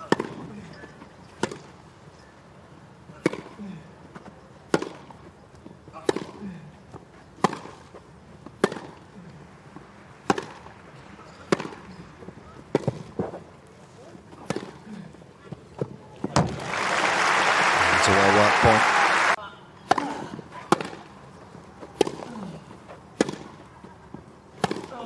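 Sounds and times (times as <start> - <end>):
tennis ball hit by racquets: 0.0 - 0.4, 1.4 - 1.7, 4.7 - 5.1, 6.0 - 6.5, 7.4 - 9.0, 10.2 - 10.7, 11.4 - 12.0, 12.6 - 13.4, 14.4 - 14.9, 19.8 - 21.2, 21.9 - 22.5, 23.2 - 23.6, 24.5 - 25.0.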